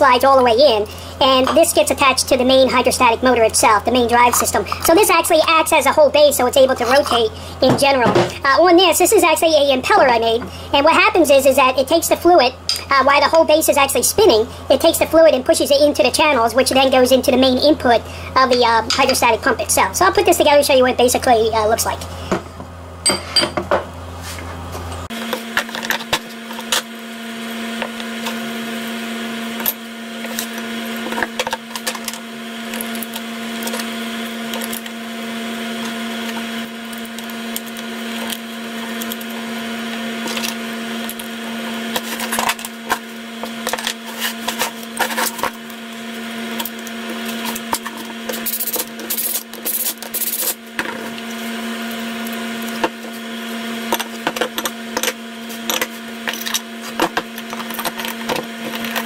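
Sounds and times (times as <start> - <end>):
steady hum: 0.0 - 59.0
metal parts clinking and scraping: 53.9 - 59.0.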